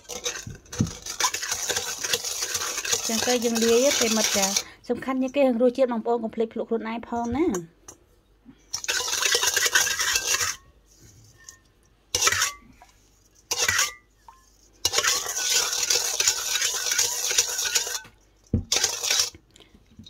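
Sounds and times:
spoon scraping steel bowl: 0.0s - 4.7s, 8.7s - 19.4s.

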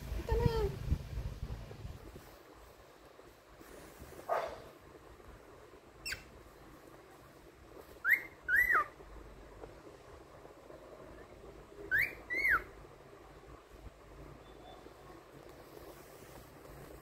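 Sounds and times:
cockatiel whistling: 8.0s - 9.0s, 11.9s - 12.8s.

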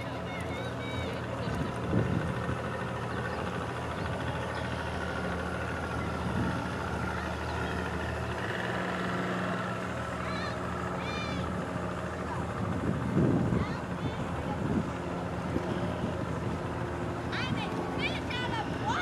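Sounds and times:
outboard motor running: 0.0s - 19.0s
water noise: 0.0s - 19.0s
wind: 0.0s - 19.0s.

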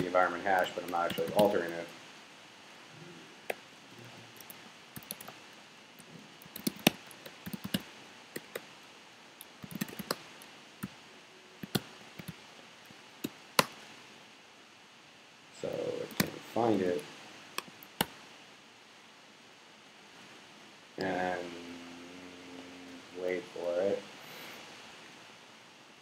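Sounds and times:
typing on computer keyboard: 4.4s - 5.4s, 6.4s - 7.8s, 9.4s - 10.2s.

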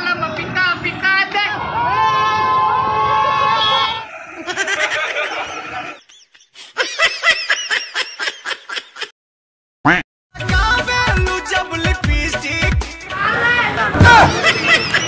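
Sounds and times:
man laughing hard: 4.2s - 9.1s, 14.1s - 15.0s.

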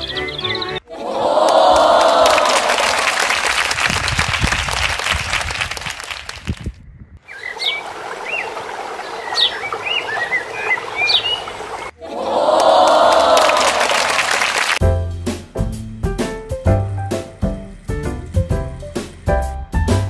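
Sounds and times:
birds chirping: 0.0s - 0.8s, 7.2s - 12.0s.

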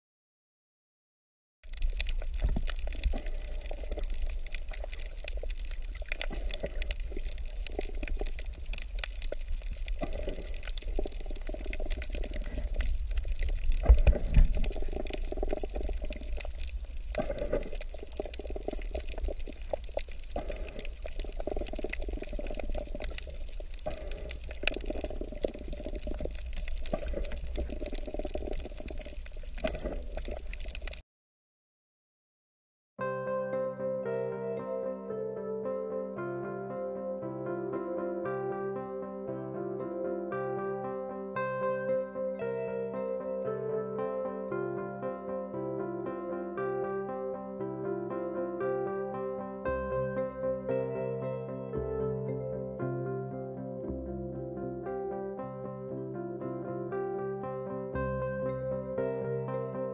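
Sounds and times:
small crackling clicks: 1.7s - 31.0s
underwater bubbling water: 1.7s - 31.0s.

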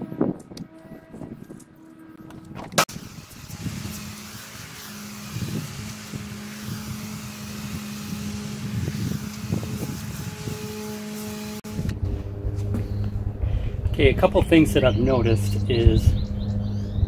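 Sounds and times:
pressure washer motor hum: 2.4s - 12.6s
water jet hissing: 2.8s - 11.6s.

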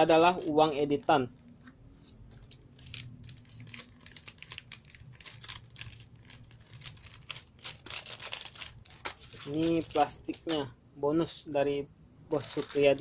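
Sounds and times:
paper banknotes rustling: 0.0s - 1.0s, 2.0s - 10.6s, 12.3s - 13.0s
plastic sleeve crinkling: 0.0s - 10.6s, 12.3s - 13.0s.

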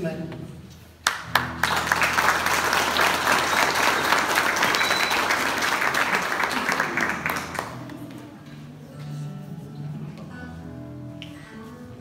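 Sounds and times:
audience applauding: 1.0s - 8.1s.

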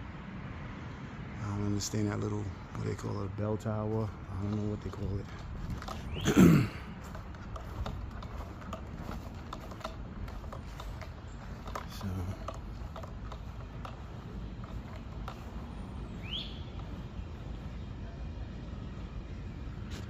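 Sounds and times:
light clicks and ticks: 2.2s - 6.2s, 7.0s - 15.9s.

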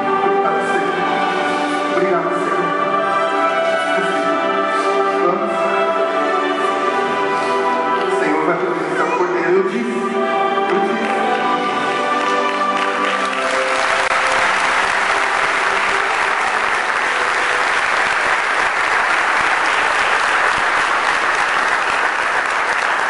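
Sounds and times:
music playing: 0.0s - 23.0s
audience applauding: 11.0s - 23.0s.

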